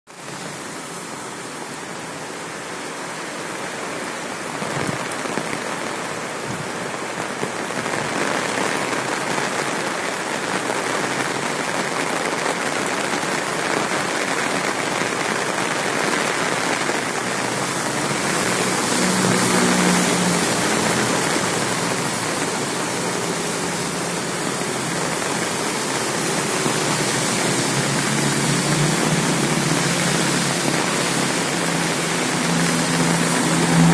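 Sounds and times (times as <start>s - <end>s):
heavy rain on wet street: 0.1s - 33.9s
passing car hum: 17.5s - 33.9s.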